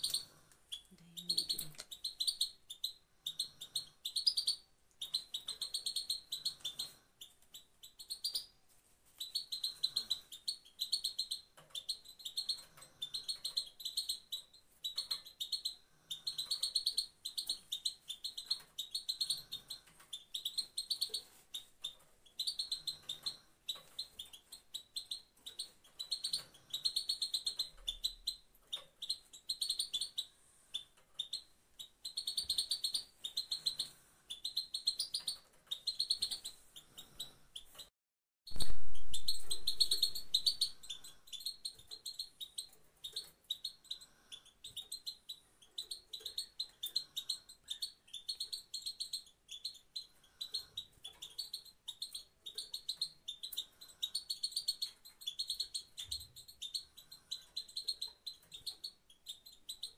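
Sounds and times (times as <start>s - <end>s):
goldfinch twittering call: 38.5s - 41.8s.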